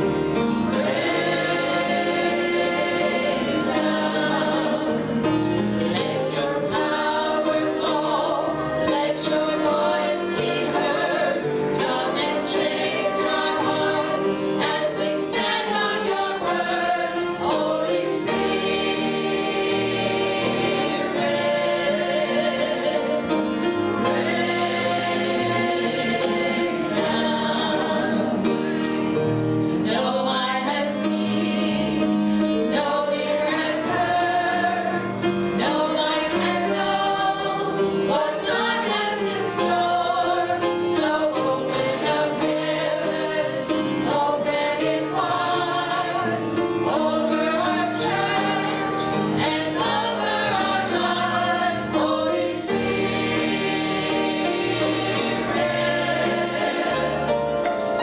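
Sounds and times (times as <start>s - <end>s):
women singing gospel in harmony: 0.7s - 28.6s, 29.8s - 57.9s.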